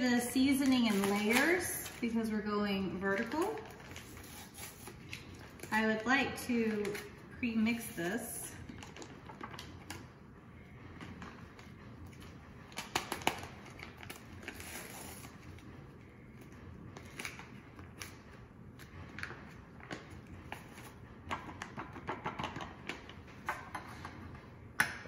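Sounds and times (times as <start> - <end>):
packets crinkling and rustling: 0.4 - 2.3, 3.1 - 8.0.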